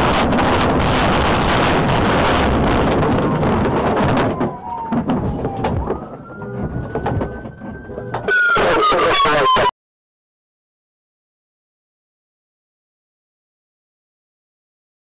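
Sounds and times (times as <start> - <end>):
siren tone: 1.8 - 9.8
scattered knocks: 2.8 - 8.3.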